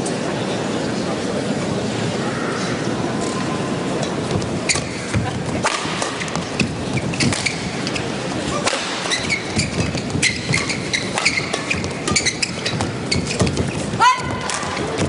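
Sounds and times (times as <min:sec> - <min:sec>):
murmur of the hall: 0:00.0 - 0:15.0
shoes squeaking on court: 0:04.0 - 0:15.0
racket striking shuttlecock: 0:04.3 - 0:15.0.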